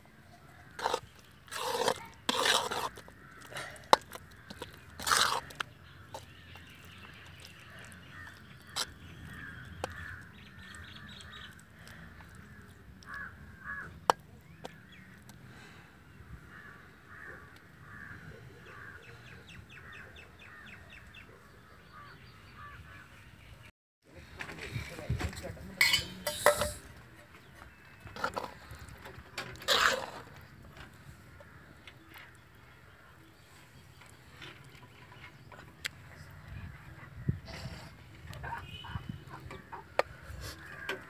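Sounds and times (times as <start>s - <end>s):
metal spoon stirring thick mixture: 0.6s - 15.3s, 27.7s - 30.6s
crows cawing: 2.4s - 5.6s, 7.8s - 14.0s, 16.4s - 20.8s, 39.6s - 41.0s.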